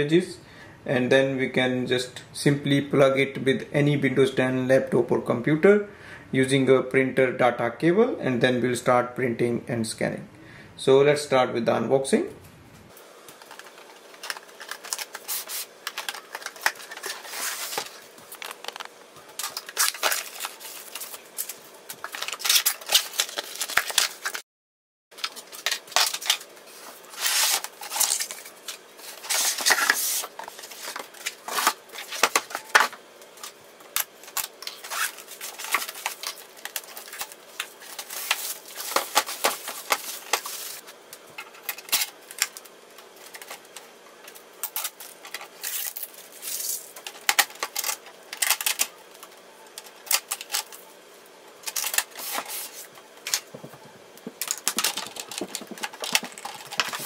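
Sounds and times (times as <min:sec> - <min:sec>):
packaging rustling and crackling: 0:13.3 - 0:24.4, 0:25.2 - 0:50.8, 0:51.6 - 0:57.0.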